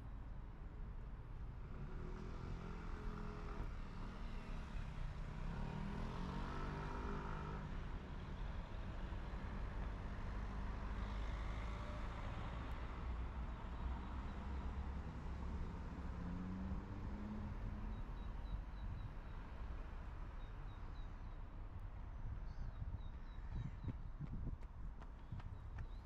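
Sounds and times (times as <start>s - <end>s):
cars driving past: 9.4s - 18.7s.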